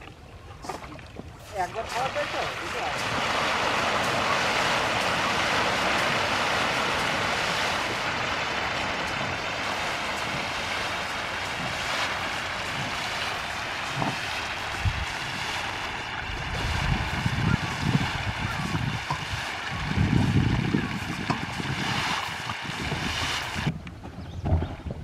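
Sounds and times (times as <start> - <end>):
soft low thumps: 23.7 - 25.0.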